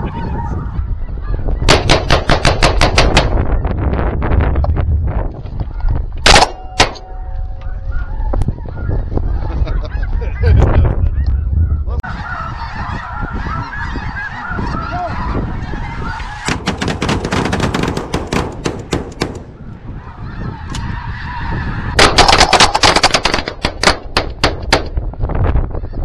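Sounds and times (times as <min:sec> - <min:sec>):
geese calling: 0:00.0 - 0:03.8, 0:05.6 - 0:23.3
rapid shotgun fire: 0:01.7 - 0:03.4, 0:06.2 - 0:07.0, 0:16.5 - 0:19.5, 0:22.0 - 0:25.0.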